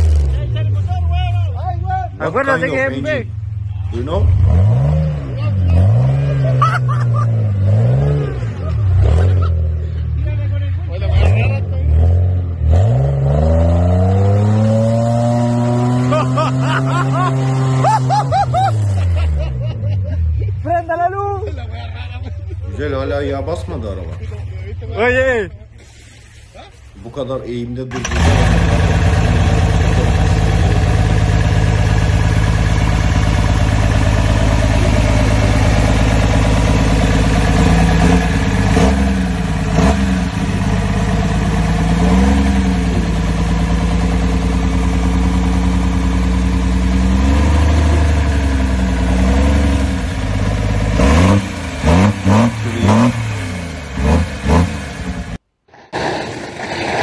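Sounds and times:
truck engine idling and revving: 0:00.0 - 0:57.0.

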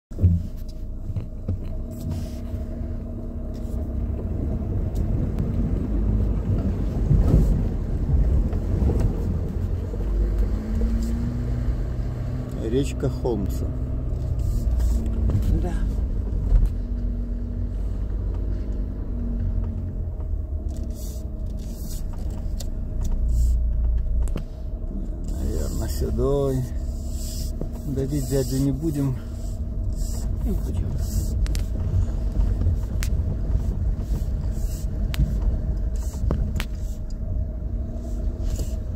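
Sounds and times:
car bump: 0:00.1 - 0:02.3
low engine rumble: 0:00.1 - 0:38.9.

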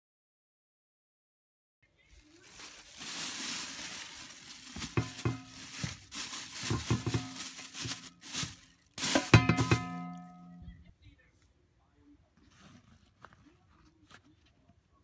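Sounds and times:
rustling crinkling handling noise: 0:02.0 - 0:10.4
sharp knocks and clatters: 0:04.7 - 0:10.6.

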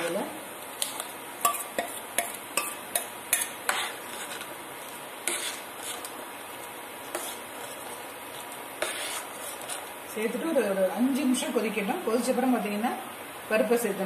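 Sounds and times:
spoon scraping cooking pot: 0:01.4 - 0:04.6, 0:05.2 - 0:06.2, 0:07.0 - 0:10.0.

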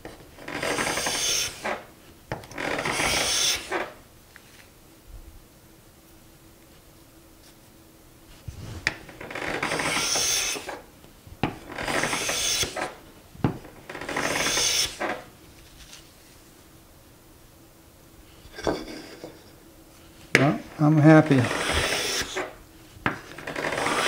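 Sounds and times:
hand plane shaving wood: 0:00.4 - 0:01.9, 0:02.5 - 0:04.0, 0:08.6 - 0:10.8, 0:11.5 - 0:13.0, 0:13.8 - 0:15.3, 0:21.2 - 0:24.0.

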